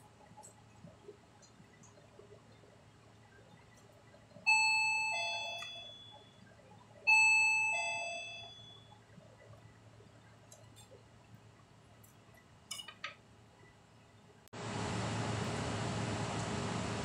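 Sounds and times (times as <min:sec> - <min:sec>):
two-note doorbell chime: 0:04.5 - 0:06.3, 0:07.1 - 0:08.9.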